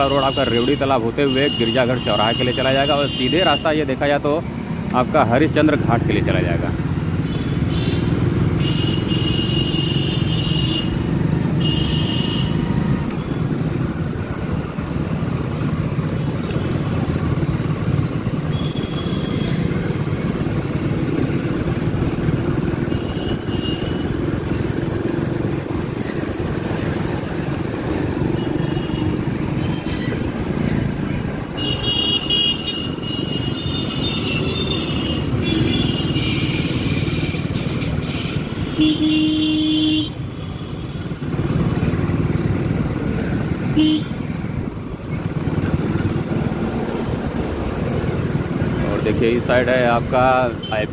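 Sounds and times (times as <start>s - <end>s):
car horns honking: 7.3s - 12.6s, 22.8s - 24.2s, 31.6s - 40.2s, 43.7s - 44.3s.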